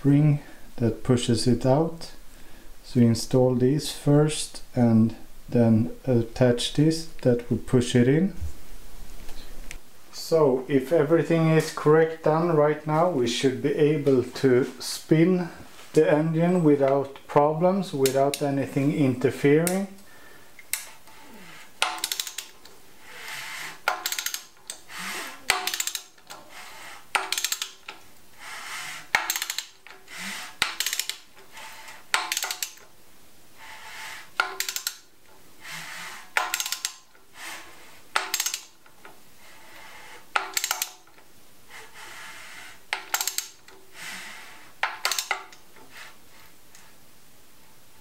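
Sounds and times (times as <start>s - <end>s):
ratchet clicks: 21.8s - 26.5s, 27.1s - 32.9s, 34.4s - 35.1s, 35.8s - 37.2s, 38.1s - 39.0s, 40.3s - 41.2s, 42.9s - 43.8s, 44.8s - 45.6s.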